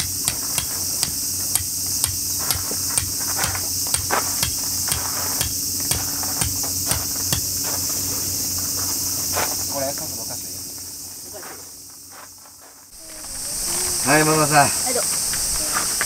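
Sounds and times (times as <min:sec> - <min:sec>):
tent peg being hammered: 0:00.0 - 0:07.6
insects droning: 0:00.0 - 0:16.0.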